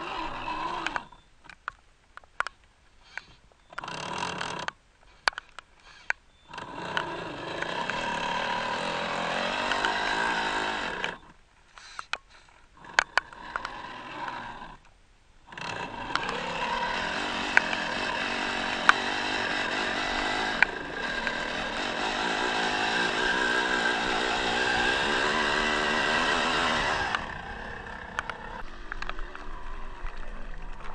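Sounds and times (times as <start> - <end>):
electric motor whining: 0.0 - 1.2, 3.0 - 12.2, 12.8 - 14.9, 15.5 - 30.9
sharp clicks and knocks: 0.8 - 8.1, 15.5 - 27.4.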